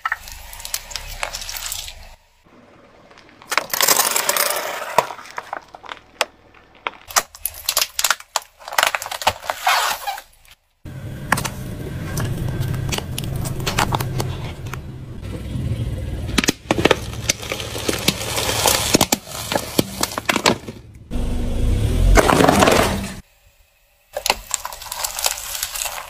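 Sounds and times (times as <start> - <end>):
plastic cracking and popping: 5.0 - 9.5, 16.4 - 20.8, 24.2 - 26.0
car engine running low: 10.9 - 23.2.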